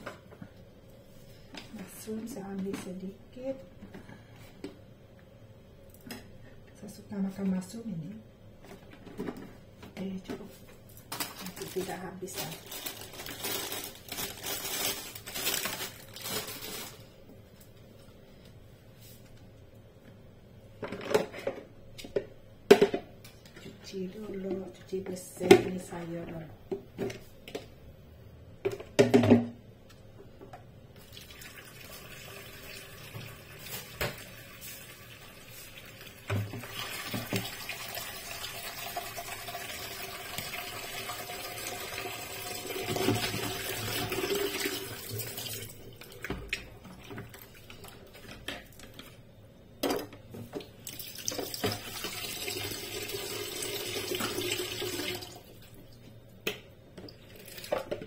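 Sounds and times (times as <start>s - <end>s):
tap water running into sink: 31.0s - 47.4s, 50.9s - 55.4s.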